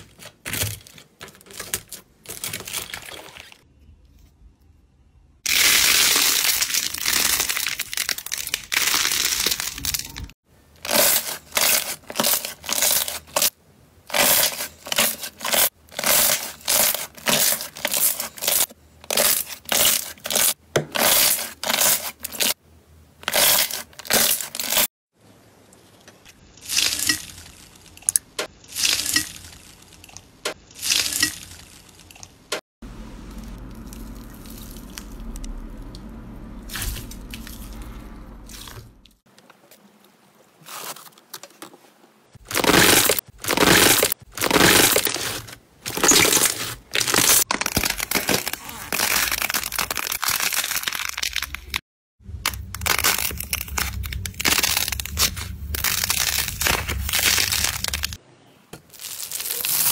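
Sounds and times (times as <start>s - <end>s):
low steady hum: 32.8s - 39.2s, 52.2s - 58.2s
slime crackling and squelching: 32.9s - 35.6s, 42.4s - 58.2s, 58.9s - 59.9s.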